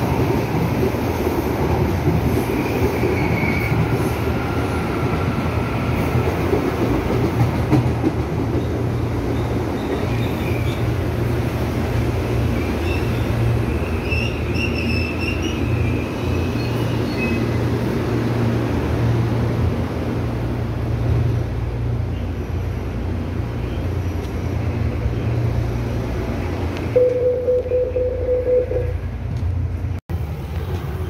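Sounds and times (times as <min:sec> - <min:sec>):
low hum of standing train: 0:00.0 - 0:31.0
train brake squeal: 0:12.8 - 0:17.6
steady beep tone: 0:27.0 - 0:29.0.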